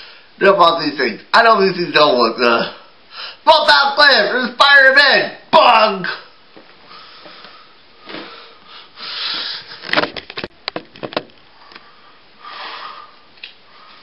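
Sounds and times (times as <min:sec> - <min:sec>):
breathy rustling: 0:06.7 - 0:10.0
sharp clicks and knocks: 0:09.8 - 0:11.8.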